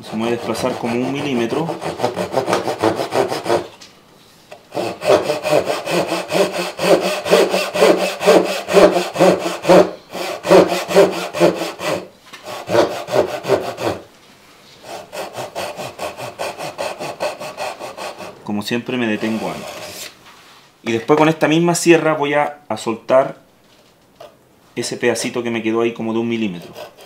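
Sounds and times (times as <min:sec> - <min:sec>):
handsaw cutting wood: 0:00.0 - 0:03.7, 0:04.7 - 0:14.1, 0:14.8 - 0:18.4, 0:19.1 - 0:20.1, 0:26.4 - 0:27.0.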